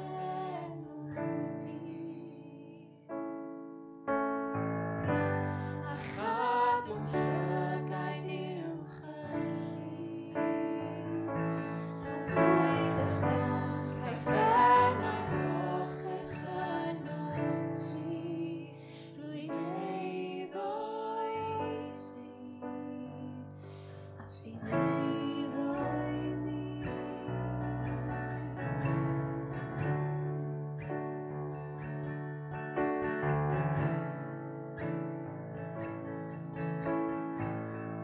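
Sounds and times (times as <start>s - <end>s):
woman singing slow worship song: 0.0s - 3.1s, 5.4s - 28.7s
acoustic guitar: 0.0s - 38.0s
keyboard: 0.0s - 38.0s.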